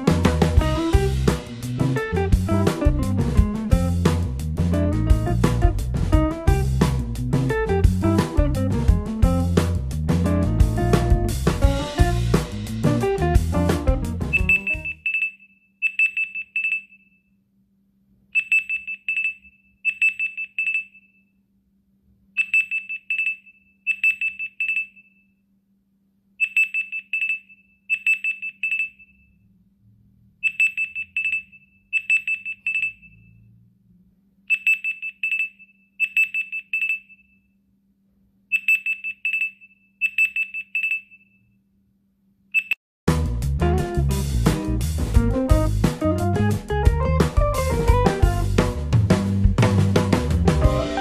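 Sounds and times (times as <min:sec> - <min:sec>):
phone alarm high beeps: 0:14.3 - 0:17.1, 0:18.4 - 0:21.1, 0:22.4 - 0:25.1, 0:26.4 - 0:29.2, 0:30.4 - 0:33.4, 0:34.5 - 0:37.3, 0:38.5 - 0:41.4, 0:42.6 - 0:42.8.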